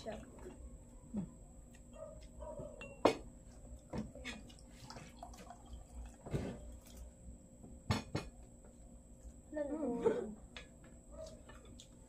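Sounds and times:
glasses and spoons clinking: 2.8 - 3.2
juice pouring into a glass: 4.7 - 7.2.

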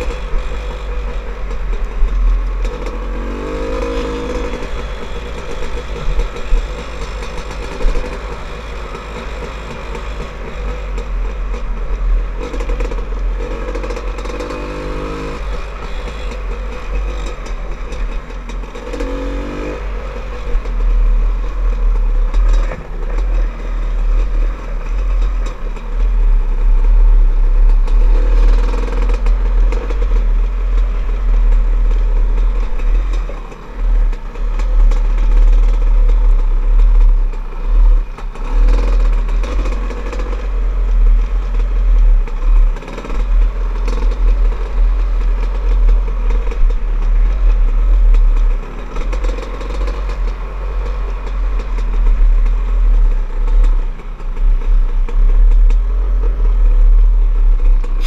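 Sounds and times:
dirt bike engine revving: 2.6 - 11.1, 12.4 - 21.2.

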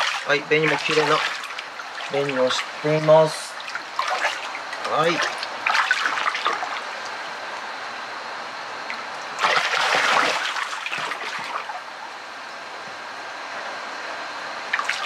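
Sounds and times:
water splashing in a plastic tub: 0.0 - 7.3, 8.9 - 11.9, 14.7 - 15.0
running water trickling: 0.0 - 7.8.

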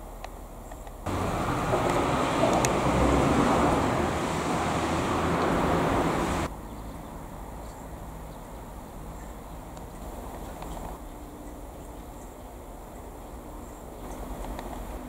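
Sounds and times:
faint outdoor background: 0.0 - 15.0
vehicle noise: 1.0 - 11.0.

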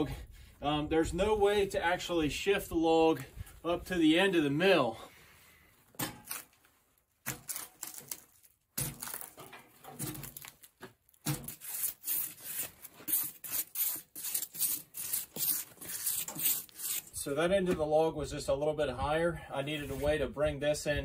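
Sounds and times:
stiff brush scrubbing log: 11.4 - 17.2.

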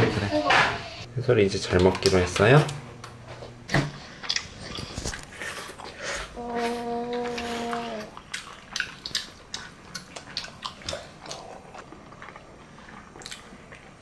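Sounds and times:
steady pitched hum: 0.0 - 14.0
baby eating clicks and smacks: 1.7 - 2.8, 7.4 - 14.0.

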